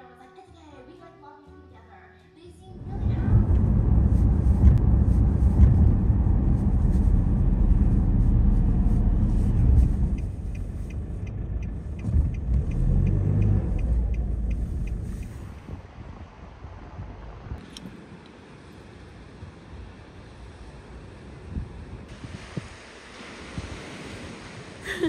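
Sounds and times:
car engine and road noise: 0:02.6 - 0:25.0
light regular ticking: 0:09.5 - 0:15.7.

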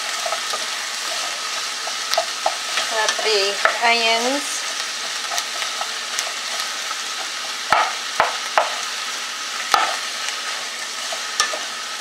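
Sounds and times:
vegetables sizzling in butter: 0:00.0 - 0:12.0
wooden spoon knocking pot: 0:07.7 - 0:08.8.

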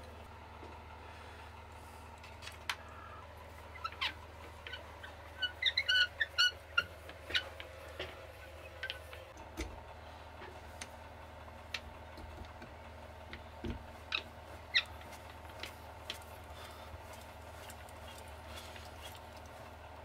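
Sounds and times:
short high squeaks: 0:03.7 - 0:07.6.

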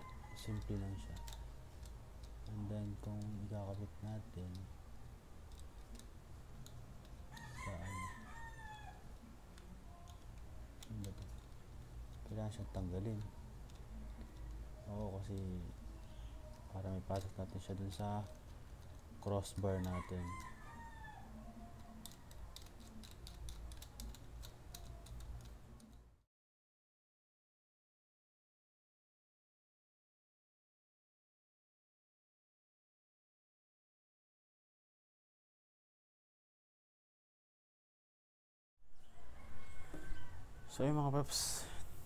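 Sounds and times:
rooster crowing: 0:00.0 - 0:01.4, 0:07.3 - 0:09.1, 0:19.7 - 0:22.0, 0:39.0 - 0:41.0.

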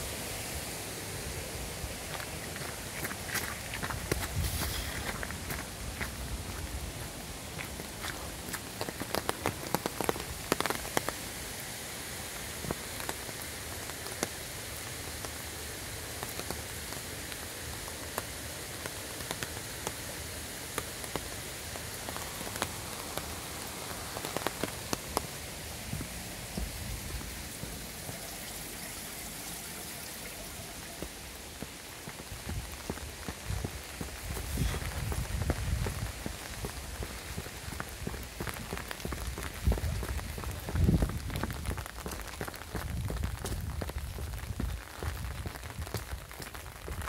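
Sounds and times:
rain hissing: 0:00.0 - 0:47.0
raindrops ticking: 0:02.0 - 0:11.6, 0:12.2 - 0:47.0.

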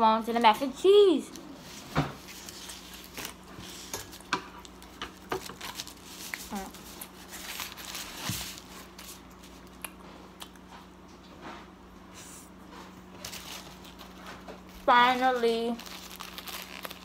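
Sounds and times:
faint steady hum: 0:00.0 - 0:17.0
foil wrapper crinkling: 0:01.6 - 0:09.8, 0:13.2 - 0:17.0.

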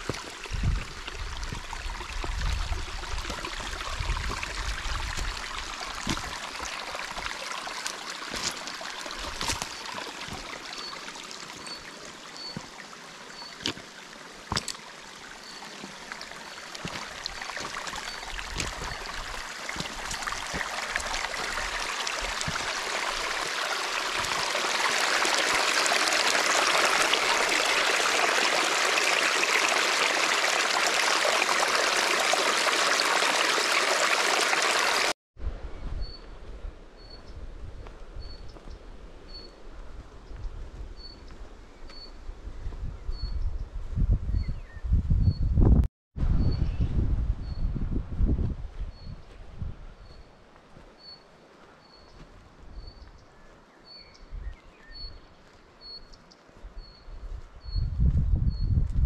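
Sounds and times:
stream trickling over stones: 0:00.0 - 0:35.2.

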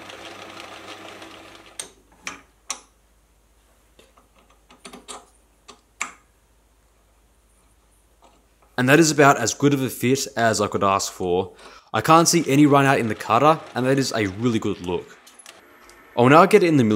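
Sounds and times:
metal lathe running: 0:12.0 - 0:16.2.

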